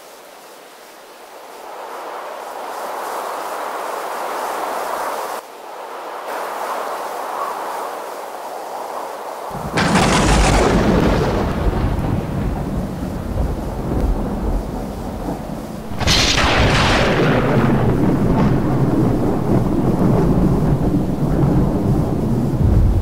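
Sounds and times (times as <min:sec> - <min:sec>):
soft steady rushing noise: 0:00.0 - 0:10.8
thunder cracking and rumbling: 0:09.5 - 0:23.0.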